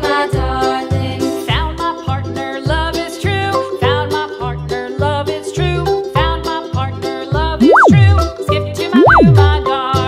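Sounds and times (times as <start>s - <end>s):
melody over bass beat: 7.6s - 8.4s, 9.0s - 9.6s.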